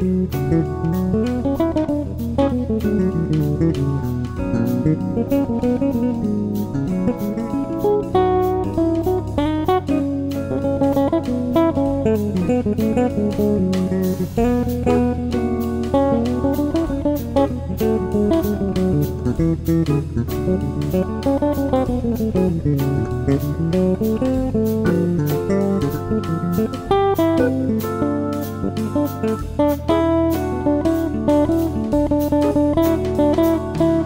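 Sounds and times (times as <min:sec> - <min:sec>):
guitar instrumental music: 0:00.0 - 0:34.0.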